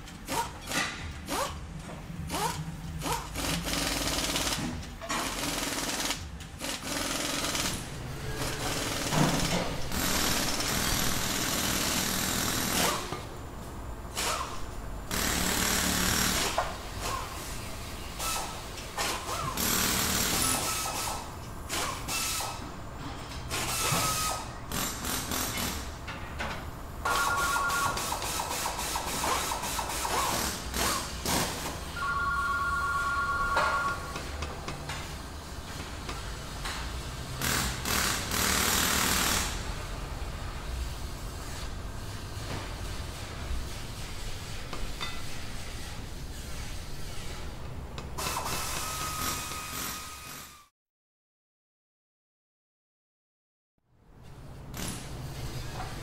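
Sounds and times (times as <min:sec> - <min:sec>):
two-tone ring: 0:27.1 - 0:28.0, 0:32.0 - 0:34.2.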